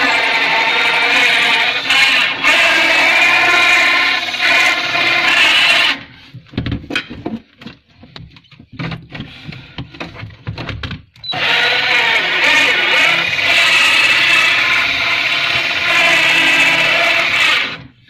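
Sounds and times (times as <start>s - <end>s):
power drill cutting wood: 0.0s - 6.1s, 11.2s - 17.9s
knocks and scrapes: 6.2s - 11.2s.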